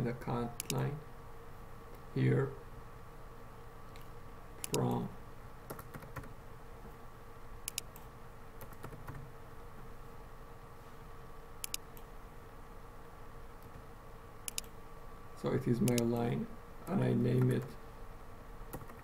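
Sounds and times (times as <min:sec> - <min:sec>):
faint electrical hum: 0:00.0 - 0:19.0
mouse clicks: 0:00.6 - 0:00.8, 0:03.9 - 0:04.9, 0:07.6 - 0:09.0, 0:11.6 - 0:12.1, 0:14.4 - 0:14.8, 0:15.9 - 0:16.1
computer key presses: 0:04.0 - 0:04.8, 0:07.7 - 0:08.0, 0:11.6 - 0:12.1, 0:14.5 - 0:14.7.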